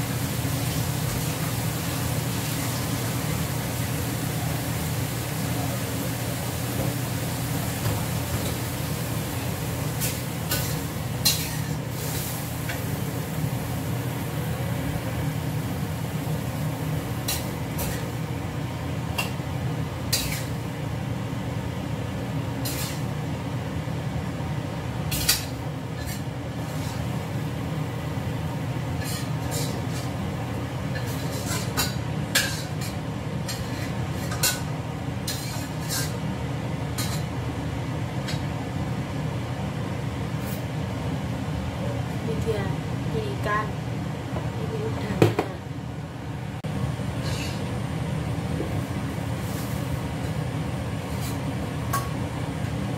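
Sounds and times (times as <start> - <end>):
utensils clinking against wok: 10.0 - 11.8, 20.1 - 20.6, 22.6 - 23.1, 25.1 - 27.1, 29.0 - 30.2, 30.9 - 36.2, 37.0 - 37.3, 47.2 - 47.7.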